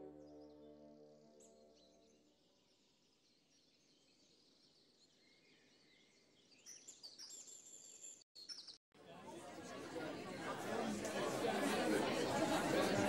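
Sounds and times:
small birds chirping: 1.4 - 8.8.

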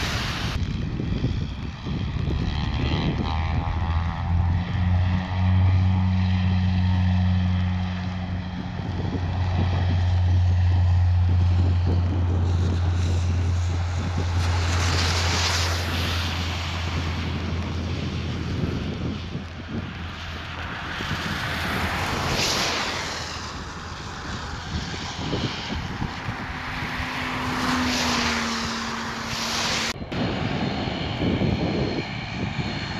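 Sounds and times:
propeller airliner taking off: 0.0 - 32.9
wind gusts on microphone: 0.0 - 32.9.

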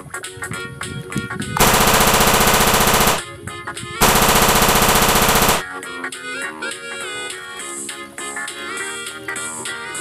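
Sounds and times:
toy gun rapid-fire sound: 1.6 - 3.2, 4.0 - 5.6.

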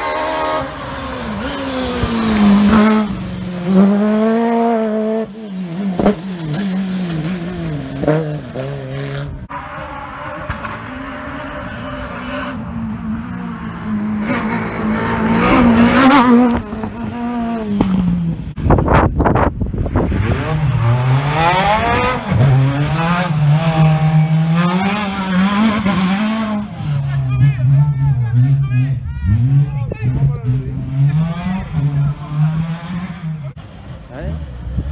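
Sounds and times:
rally car engines revving: 0.0 - 34.9.

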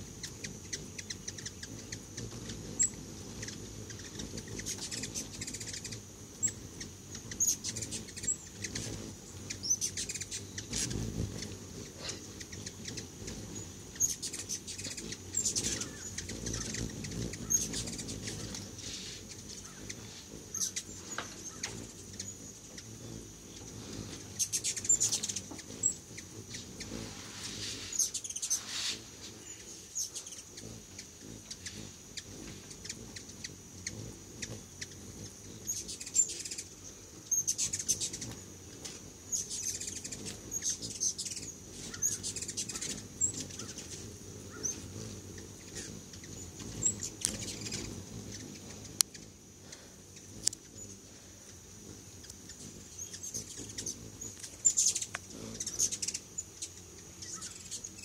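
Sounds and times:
hummingbird wings whirring: 0.0 - 58.0
hummingbirds chittering: 0.0 - 58.0.

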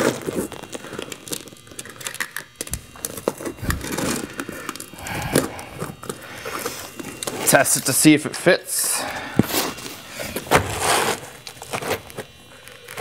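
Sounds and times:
shingle tearing and crackling: 0.0 - 7.5, 10.4 - 13.0.

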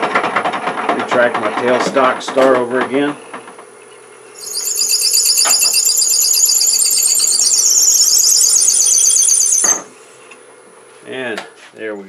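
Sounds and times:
drill bit squealing in wood: 4.4 - 9.8.

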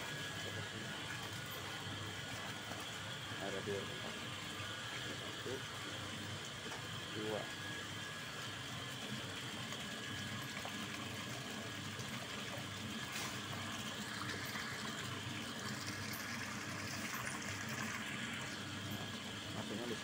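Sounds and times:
electric motor hum: 0.0 - 20.0
milk pouring and splashing: 9.2 - 19.7.

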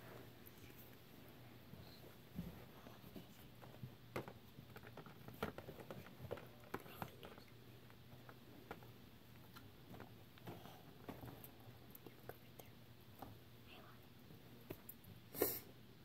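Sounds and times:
small clicks and taps: 3.1 - 13.4.

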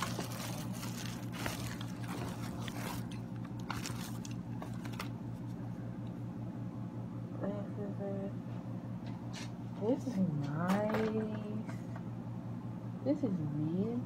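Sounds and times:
bubble wrap crinkling: 0.0 - 5.6.

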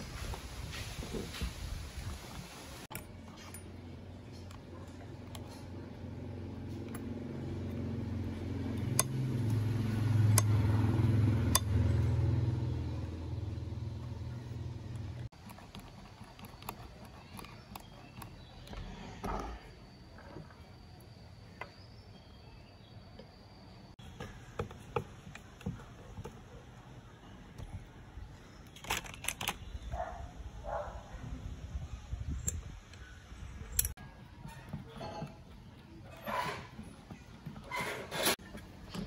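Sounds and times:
low engine-like hum: 3.0 - 15.4.

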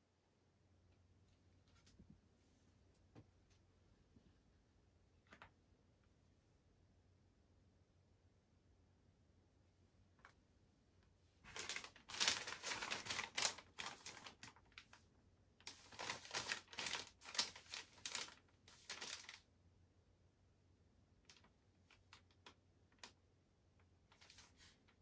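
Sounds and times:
paper rustling and crackling: 11.4 - 15.0, 15.6 - 19.4, 24.1 - 25.0.

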